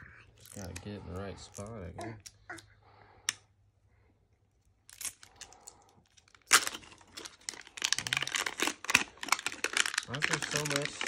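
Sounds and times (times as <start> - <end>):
wrapper ripping: 4.8 - 11.0
plastic foil wrapper crinkling: 4.9 - 11.0.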